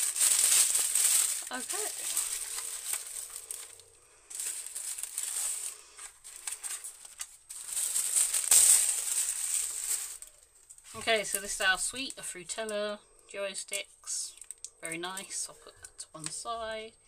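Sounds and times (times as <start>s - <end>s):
tissue paper rustling: 0.0s - 12.2s.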